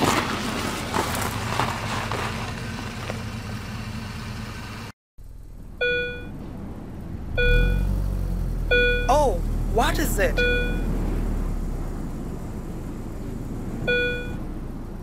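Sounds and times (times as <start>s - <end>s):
low engine hum: 0.0s - 15.0s
van engine rumbling: 0.0s - 15.0s
short electronic beeps: 5.8s - 6.3s, 7.4s - 7.9s, 8.7s - 9.4s, 10.0s - 10.9s, 13.9s - 14.4s.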